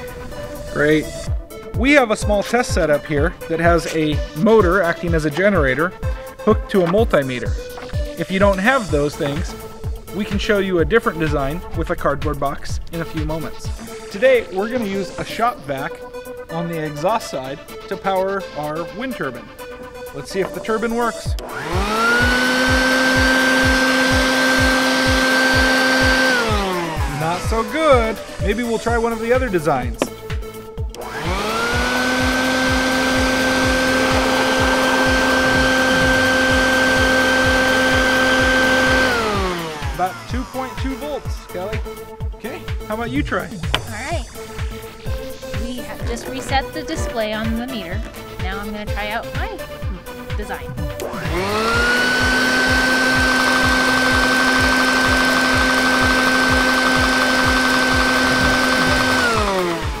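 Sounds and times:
shop vac motor whine: 7.3 - 11.7, 13.5 - 16.4, 19.0 - 42.9, 50.8 - 60.0
low pulsing: 20.2 - 60.0
small turbine spinning: 21.4 - 29.5, 31.0 - 42.1, 51.0 - 60.0.

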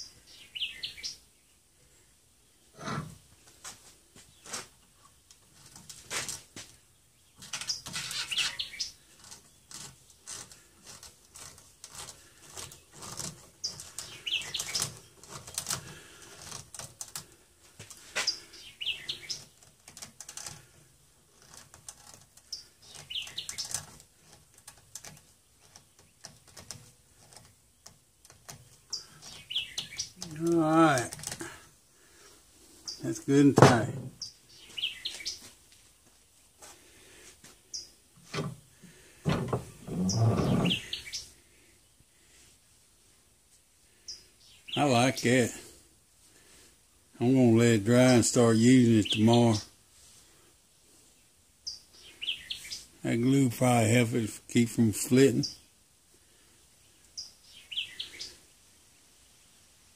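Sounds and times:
birds chirping: 0.0 - 1.7, 6.6 - 10.5, 11.4 - 20.7, 22.4 - 24.4, 25.0 - 42.3, 43.9 - 45.6, 48.3 - 49.7, 51.6 - 54.0, 56.8 - 58.5.

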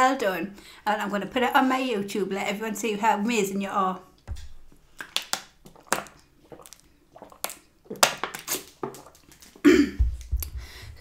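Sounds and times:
plastic bottle crackling: 4.2 - 10.6.

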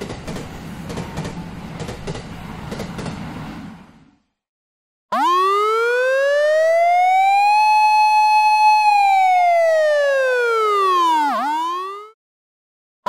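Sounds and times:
ambulance siren wail: 5.1 - 12.2.

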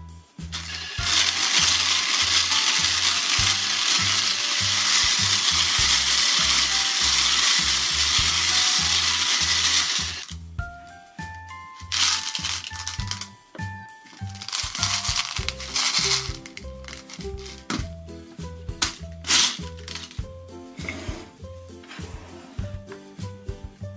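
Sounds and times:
toy mixer rattling plastic balls: 0.5 - 10.4, 11.7 - 13.4, 14.1 - 17.8, 18.8 - 20.2.

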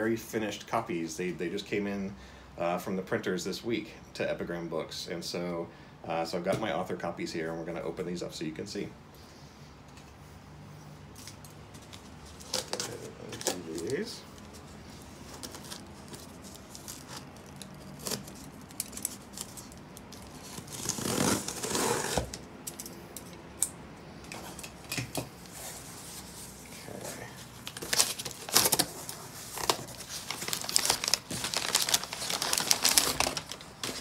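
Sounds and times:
packing paper rustling: 11.2 - 22.4, 25.4 - 34.0
cardboard flaps opening: 27.7 - 34.0.

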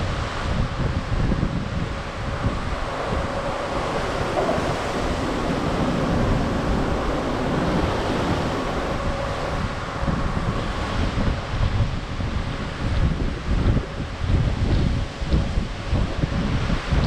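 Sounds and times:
rush of sea swells: 0.0 - 17.0
wind gusting on microphone: 0.0 - 17.0.

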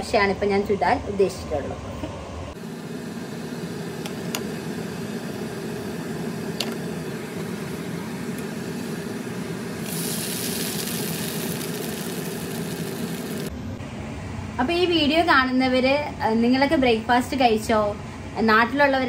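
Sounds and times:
sizzling hiss in frying pan: 9.7 - 13.5.

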